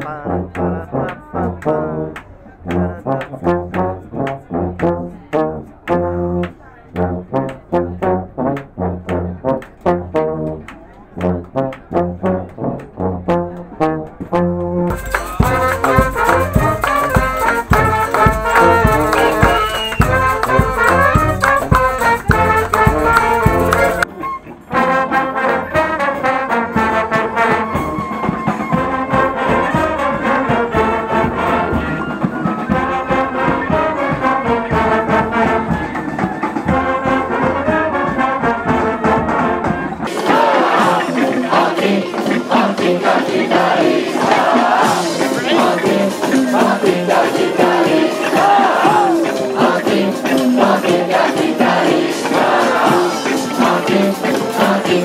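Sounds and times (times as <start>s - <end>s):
brass band playing: 0.0s - 55.0s
sharp percussive strokes: 14.9s - 24.1s, 40.1s - 55.0s.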